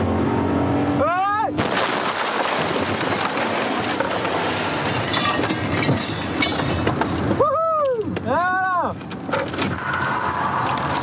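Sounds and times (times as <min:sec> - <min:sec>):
metal and debris crashing: 0:01.6 - 0:07.0.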